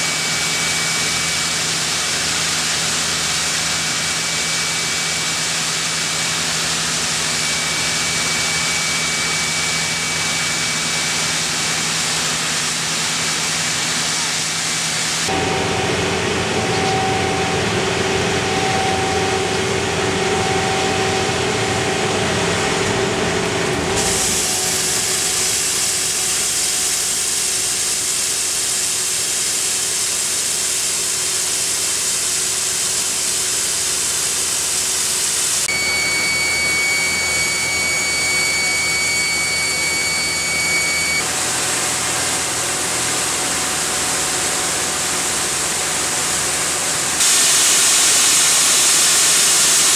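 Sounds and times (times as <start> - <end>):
steady high whistle: 0.0 - 2.0, 3.8 - 6.0, 7.1 - 12.3, 35.6 - 41.3
machine hum: 0.0 - 26.9, 35.2 - 49.9
high-pressure water jets hissing: 24.0 - 42.4, 46.6 - 49.9.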